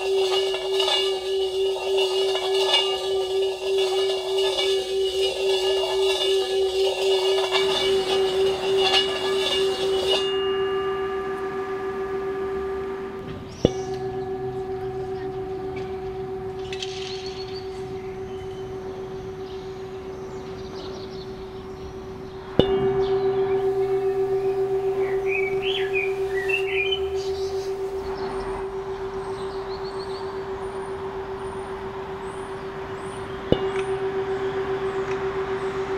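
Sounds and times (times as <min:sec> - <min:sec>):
singing bowl ringing: 0:00.0 - 0:35.9.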